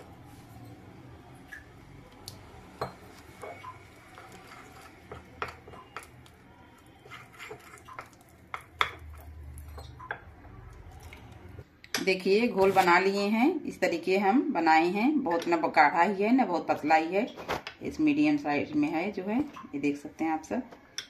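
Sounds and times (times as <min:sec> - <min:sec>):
spoon scraping batter: 0:02.9 - 0:10.1
spoon clinking against glass bowl: 0:07.0 - 0:10.3.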